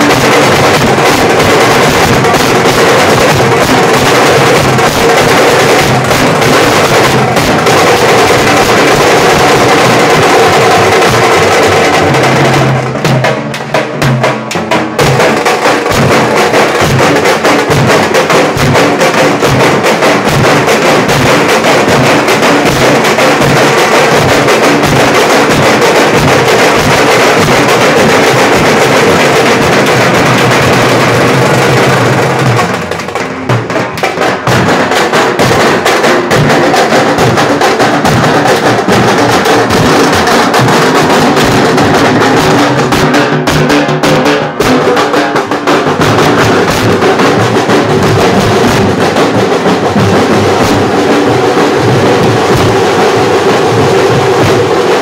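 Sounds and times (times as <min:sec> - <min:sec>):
large dhol drums beating: 0:00.0 - 0:55.0
stick-beaten tasha drum: 0:00.0 - 0:55.0.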